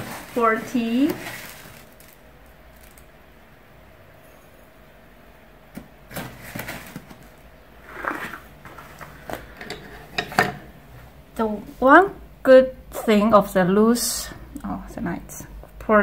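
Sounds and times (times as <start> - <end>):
paper tea bag rustling: 0.0 - 3.0, 6.1 - 9.6.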